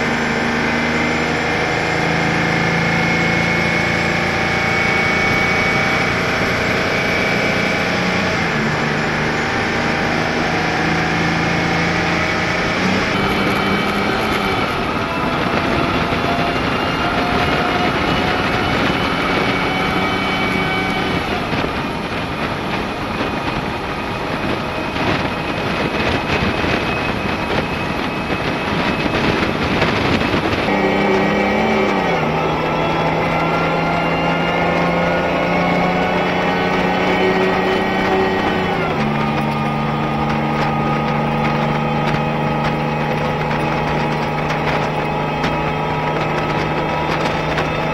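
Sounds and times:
truck engine running: 0:00.0 - 0:47.9.

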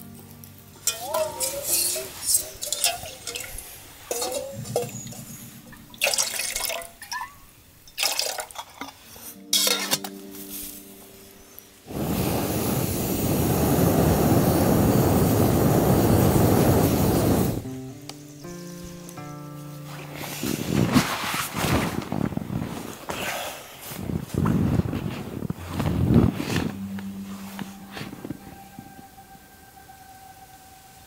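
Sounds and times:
metal pot clinking on stove: 0:00.8 - 0:05.3, 0:09.5 - 0:10.1.

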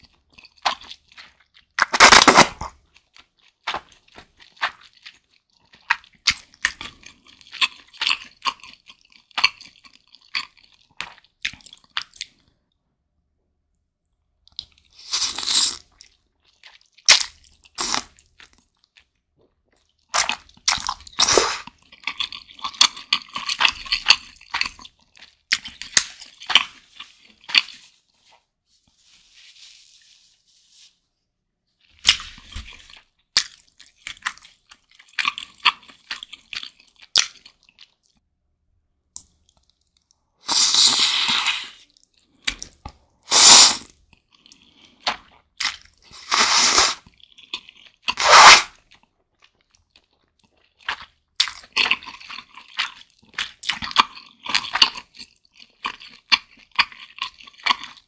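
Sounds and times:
wet chewing: 0:00.1 - 0:12.4, 0:39.2 - 0:58.0
noodles slurped: 0:40.4 - 0:43.9, 0:46.0 - 0:47.1, 0:48.1 - 0:48.8.

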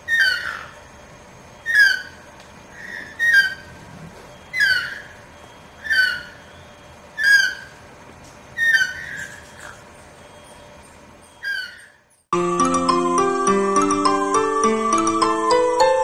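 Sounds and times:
toucan calling: 0:00.0 - 0:00.9, 0:01.6 - 0:07.9, 0:08.5 - 0:12.1.

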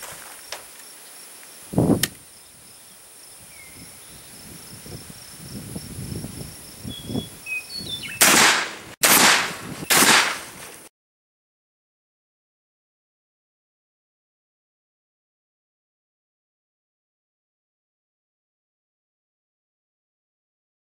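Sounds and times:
crickets chirping: 0:00.0 - 0:08.2
rifle firing boom: 0:08.2 - 0:10.5.

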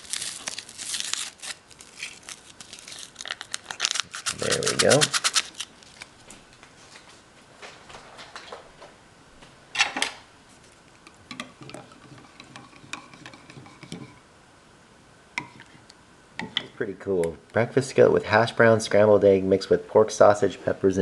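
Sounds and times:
stir stick tapping ceramic mug: 0:11.0 - 0:14.2.

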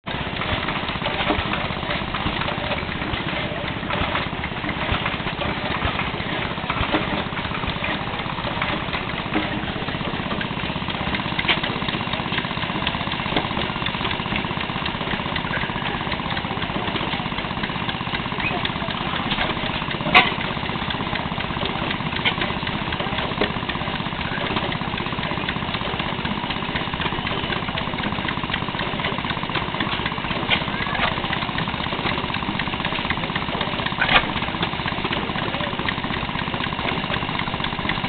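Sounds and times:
stationary gas engine running: 0:00.0 - 0:38.0
sharp engine knocks: 0:00.1 - 0:38.0.

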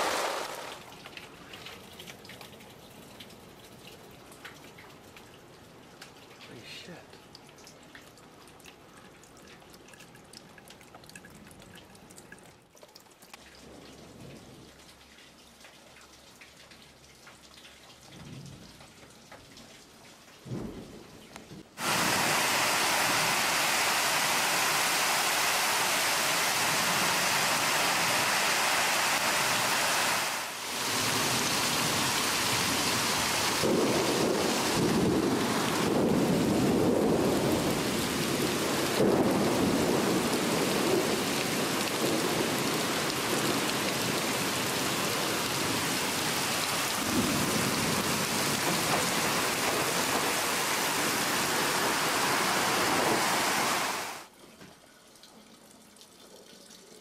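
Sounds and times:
heavy rain pouring: 0:00.0 - 0:01.6, 0:20.4 - 0:54.3
rolling thunder: 0:31.0 - 0:44.3.

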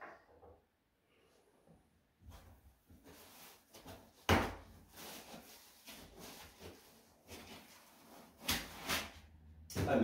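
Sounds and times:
rustling cardboard box and packaging: 0:02.3 - 0:09.4.

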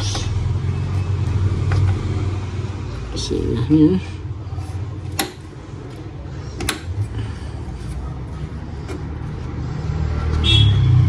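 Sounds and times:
clicks of computer parts handled: 0:05.1 - 0:05.5, 0:06.6 - 0:07.0.

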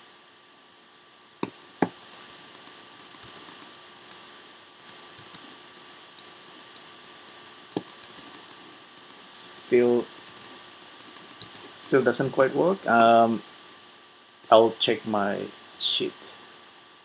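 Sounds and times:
keyboard keys clicking: 0:01.8 - 0:04.2, 0:04.8 - 0:05.5, 0:06.2 - 0:12.7
mouse buttons clicking: 0:01.8 - 0:04.2, 0:04.8 - 0:05.5, 0:06.2 - 0:12.6.

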